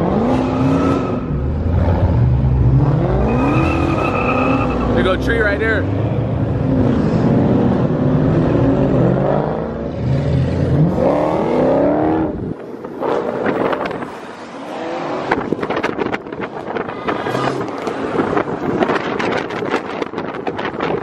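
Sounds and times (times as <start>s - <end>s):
car engines rumbling and revving: 0.0s - 21.0s
wind buffeting microphone: 15.2s - 21.0s.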